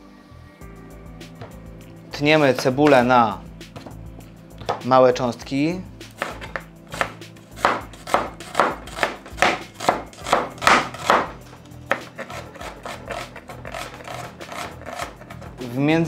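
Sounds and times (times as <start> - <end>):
knife chopping onion on cutting board: 2.3 - 3.1, 4.6 - 4.9, 6.1 - 15.4.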